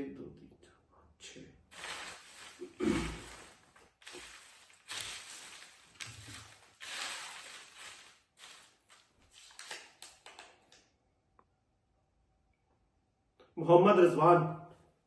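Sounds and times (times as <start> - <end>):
paper slips rustling: 1.7 - 10.4.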